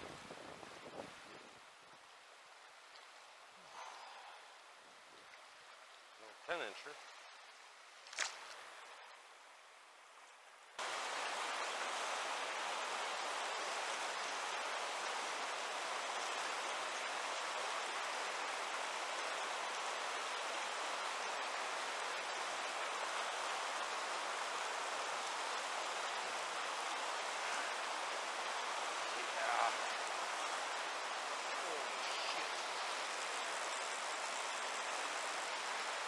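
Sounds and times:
river rapids rushing: 0:10.8 - 0:36.0.

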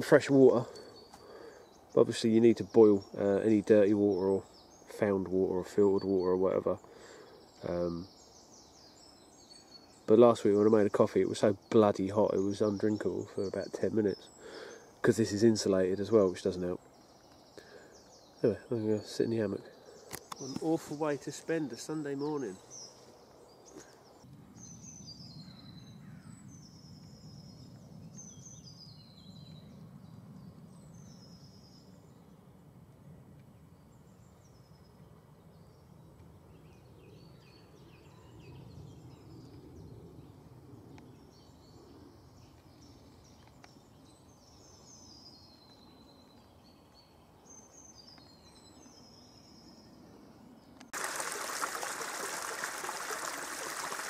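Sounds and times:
songbirds chirping: 0:00.0 - 0:54.0
stream trickling: 0:50.9 - 0:54.0.

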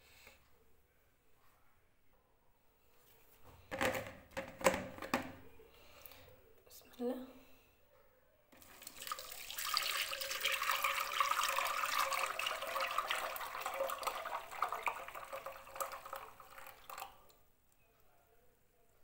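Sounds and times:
juice pouring into strainer: 0:08.6 - 0:17.4.

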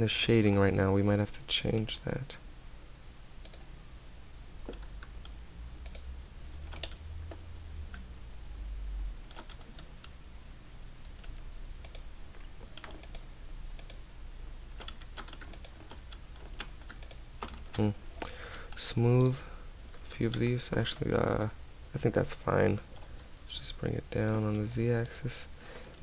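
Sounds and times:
low steady hum: 0:00.0 - 0:26.0
keyboard keys clicking: 0:06.6 - 0:07.4, 0:09.3 - 0:10.1, 0:11.1 - 0:13.2, 0:14.8 - 0:18.3.

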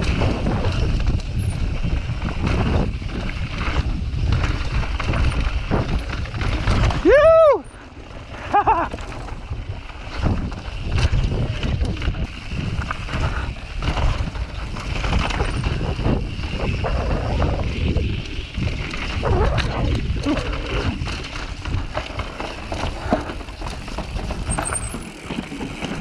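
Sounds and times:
bike knocks and rattles: 0:00.0 - 0:26.0
tyres on dirt and rock: 0:00.0 - 0:26.0
wind rumble on microphone: 0:00.0 - 0:26.0.

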